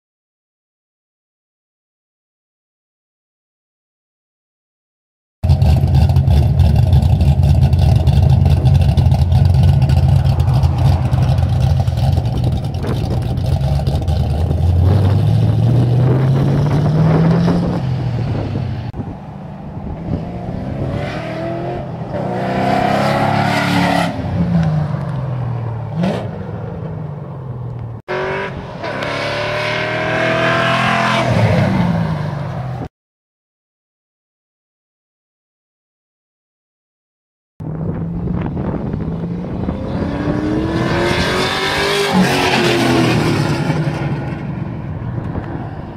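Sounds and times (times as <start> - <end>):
car engine idling loudly: 5.4 - 14.7
car driving past: 9.3 - 13.0
car accelerating through gears: 20.0 - 25.1, 28.1 - 32.4, 38.8 - 44.6.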